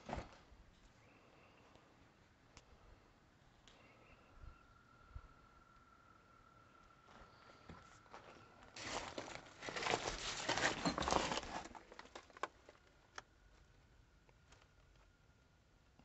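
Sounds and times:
crinkling crunching rustle: 8.7 - 13.7.

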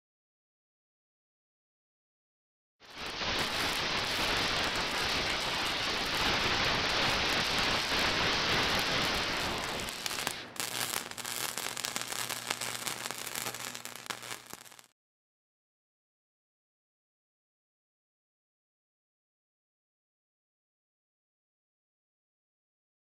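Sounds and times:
welding arc hiss and crackle: 2.8 - 14.9.

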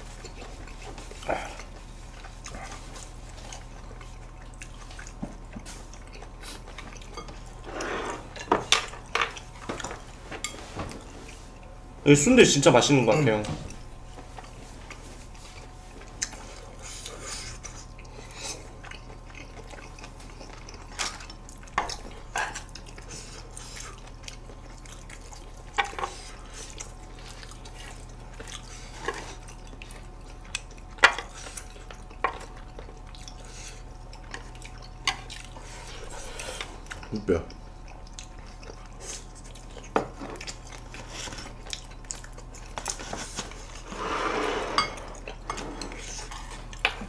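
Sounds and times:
chewing: 0.0 - 11.7, 13.7 - 43.9, 45.0 - 47.0
faint steady hum: 0.0 - 47.0.

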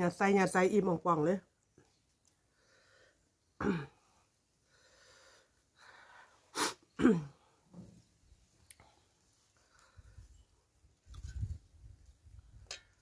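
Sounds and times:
woman breathing: 2.5 - 3.2, 4.6 - 6.8
sharp hiss of breath: 6.4 - 6.9.

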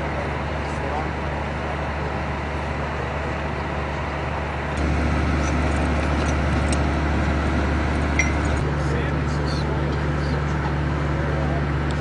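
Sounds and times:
fire engine idling: 0.0 - 12.0.

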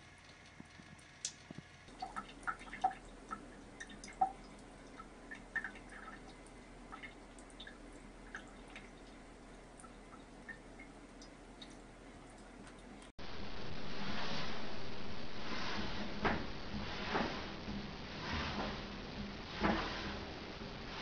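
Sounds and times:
water dripping into sink: 0.0 - 13.1.

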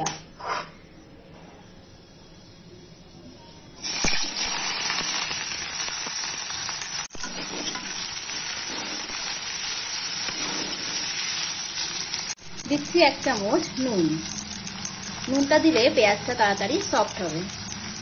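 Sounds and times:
onions sizzling in hot oil: 3.8 - 18.0
spatula stirring: 7.2 - 9.2, 12.6 - 18.0.

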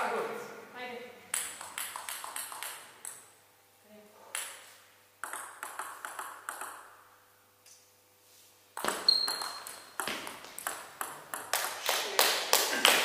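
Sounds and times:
table tennis ball clicking: 1.3 - 3.2, 4.3 - 4.6, 5.2 - 7.0, 8.8 - 11.8
shoe squeak on floor: 8.8 - 10.0.

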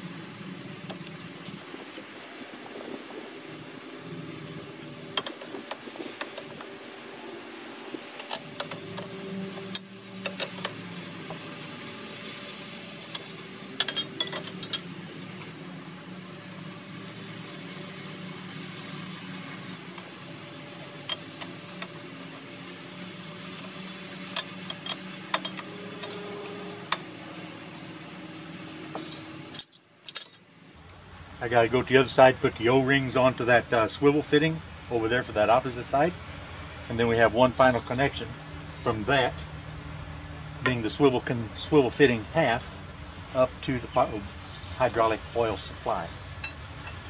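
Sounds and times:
low hum: 0.0 - 31.0
wrenches clinking on metal fittings: 13.2 - 14.9, 24.3 - 26.3, 28.9 - 30.5.

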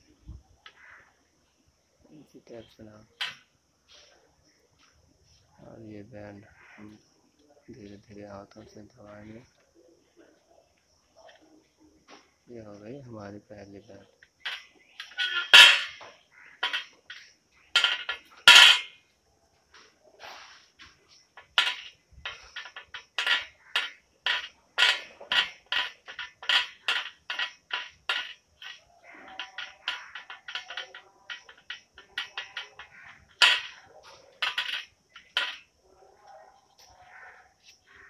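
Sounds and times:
metal tube bender clinking: 3.2 - 3.4, 14.0 - 19.0, 21.2 - 35.7.

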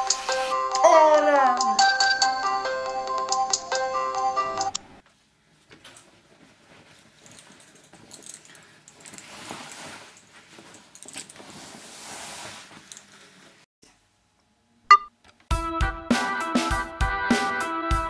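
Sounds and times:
music: 0.0 - 4.8, 15.5 - 18.0
clothes rustling: 5.0 - 13.7
short electronic beep: 14.9 - 15.1.

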